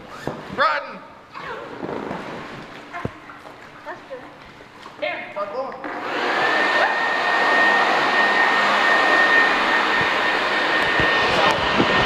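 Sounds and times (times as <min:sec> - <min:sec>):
electric blower whining: 0:05.8 - 0:12.0.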